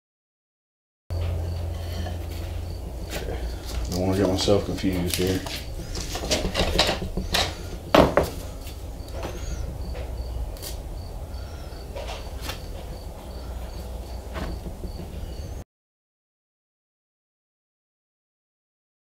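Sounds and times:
low steady hum: 1.1 - 15.6.

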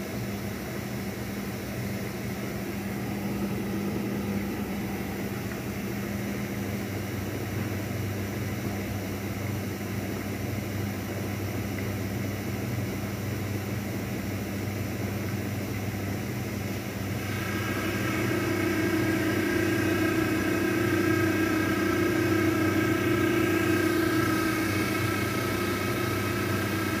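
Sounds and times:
washing machine spin hum: 0.0 - 27.0
motor whine: 2.1 - 7.3, 17.0 - 27.0.

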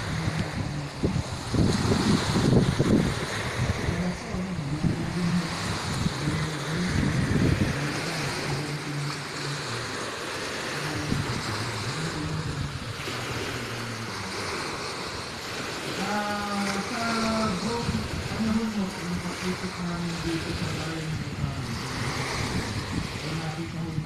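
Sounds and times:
low hum shifting in pitch: 0.0 - 15.4, 16.0 - 24.0
small waves washing on shore: 0.0 - 24.0
wind buffeting microphone: 0.0 - 24.0.

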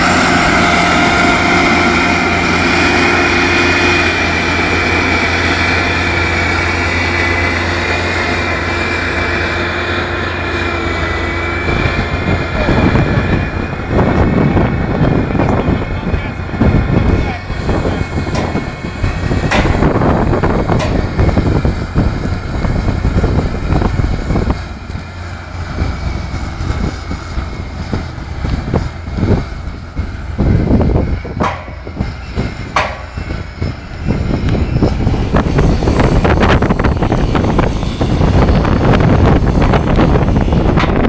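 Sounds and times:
forestry machine rumbling: 0.0 - 41.0
sharp metal clanks: 31.4 - 32.0, 32.7 - 33.3.

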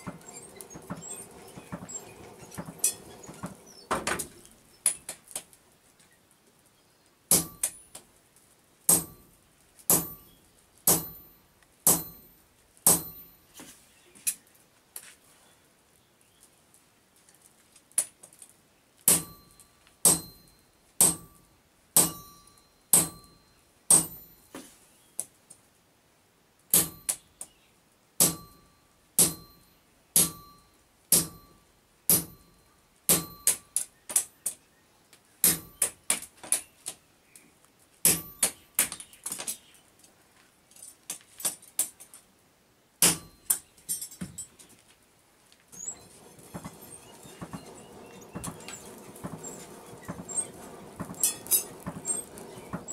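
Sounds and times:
hammer striking steel punch: 7.3 - 7.8, 8.9 - 9.3, 9.9 - 10.3, 10.9 - 11.3, 11.9 - 12.3, 12.9 - 13.3, 19.1 - 21.4, 22.0 - 24.3, 26.7 - 27.2, 28.2 - 32.5, 33.1 - 33.7, 35.4 - 36.0, 38.1 - 38.6, 43.0 - 43.6.

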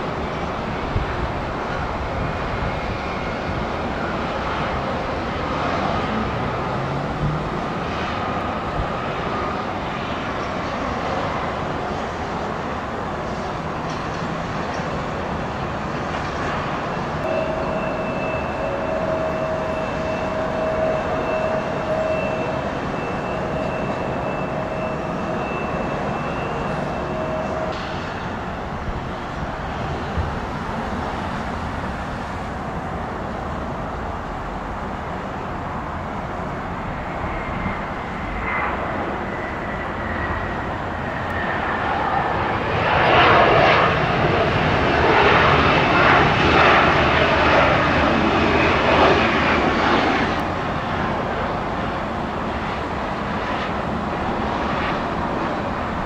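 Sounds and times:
jet engines rushing: 0.0 - 56.0
high whine: 16.1 - 31.1.

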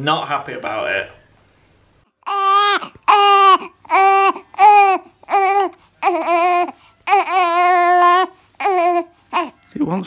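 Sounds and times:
newborn baby crying: 2.2 - 9.7.

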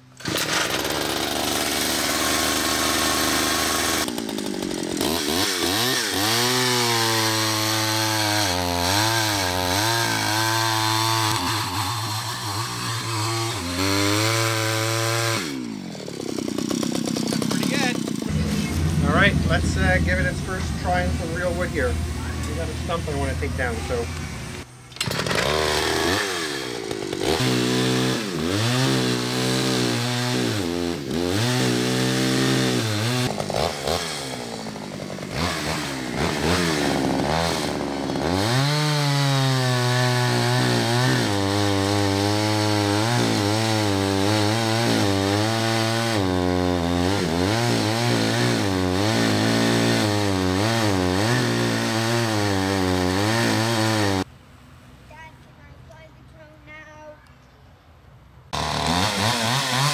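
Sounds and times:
chainsaw cutting into wood: 0.0 - 19.3, 25.0 - 54.3, 58.5 - 59.9
person talking: 17.3 - 24.2, 55.1 - 57.2.

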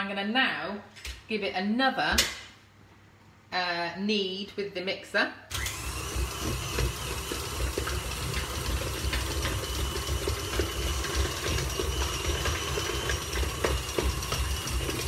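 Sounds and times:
stand mixer kneading dough: 5.5 - 15.0.

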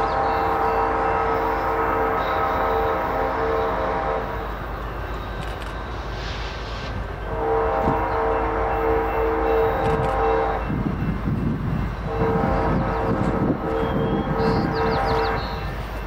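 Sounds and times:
locomotive horn blasts: 0.0 - 4.5, 7.2 - 10.9, 12.0 - 15.7
train rumble: 0.0 - 16.0.

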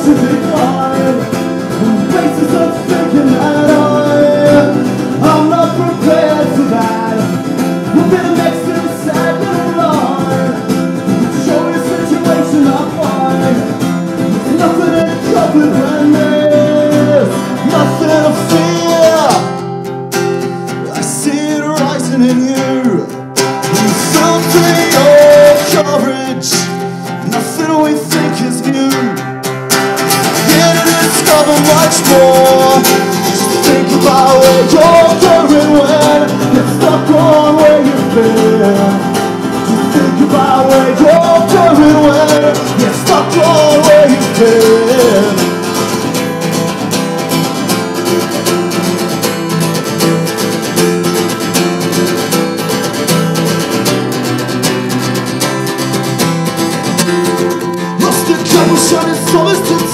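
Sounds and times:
person singing: 0.0 - 46.8, 56.7 - 59.9
acoustic guitar: 0.0 - 59.9.

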